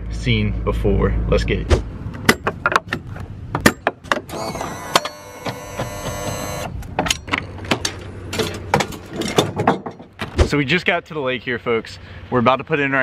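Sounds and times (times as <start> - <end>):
power window motor whining: 4.3 - 6.8.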